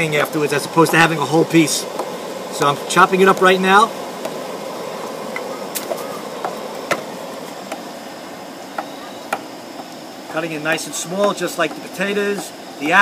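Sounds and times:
knife tapping cutting board: 10.7s - 12.5s.

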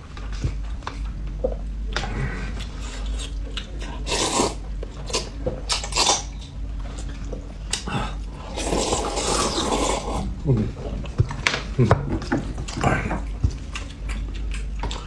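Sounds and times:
slurping noodles: 3.9s - 4.6s, 8.4s - 10.3s.

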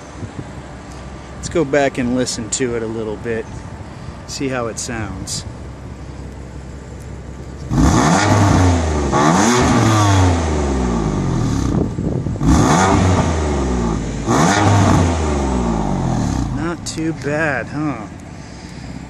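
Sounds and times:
car engine revving: 7.6s - 18.2s.

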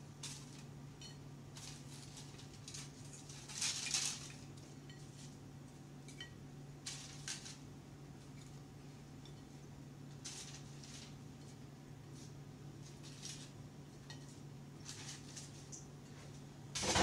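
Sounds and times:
fries tapping on ceramic plates: 16.8s - 17.0s.

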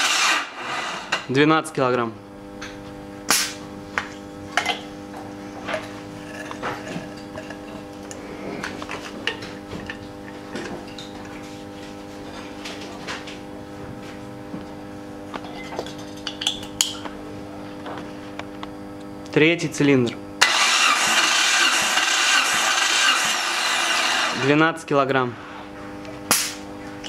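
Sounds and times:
steady low hum: 0.4s - 20.4s.

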